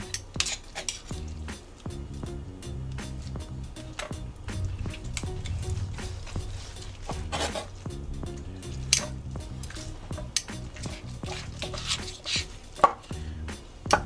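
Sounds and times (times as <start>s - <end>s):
background music: 0.0s - 14.0s
meat being pulled from bone: 8.5s - 12.5s.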